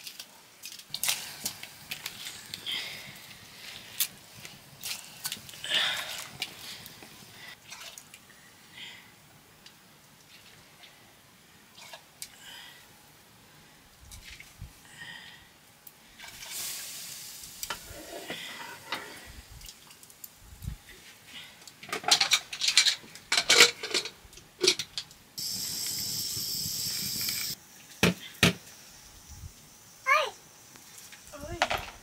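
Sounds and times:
steady sizzle: 0:00.0 - 0:14.8, 0:15.6 - 0:32.0
pots and utensils clattering: 0:21.8 - 0:25.0.

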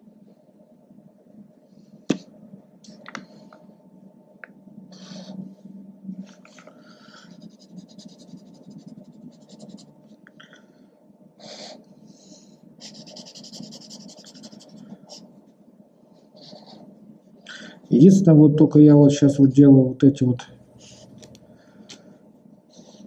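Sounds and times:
marker scratching on paper: 0:07.3 - 0:10.0, 0:12.8 - 0:15.3.

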